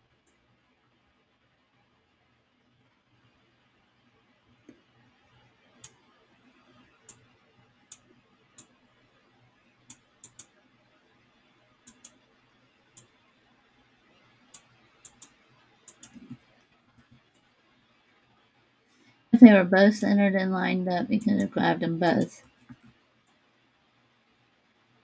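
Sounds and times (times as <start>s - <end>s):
faint room hiss: 0.0s - 25.0s
computer mouse clicking: 5.8s - 6.1s, 7.0s - 7.3s, 7.9s - 8.8s, 9.8s - 10.6s, 11.8s - 12.2s, 12.9s - 13.2s, 14.5s - 17.5s, 21.2s - 23.4s.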